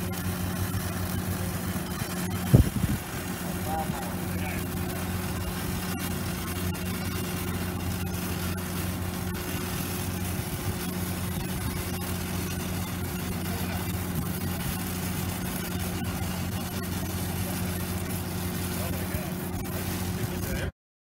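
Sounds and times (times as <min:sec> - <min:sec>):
engine-driven welder running: 0:00.0 - 0:20.7
welding arc crackling: 0:00.0 - 0:20.7.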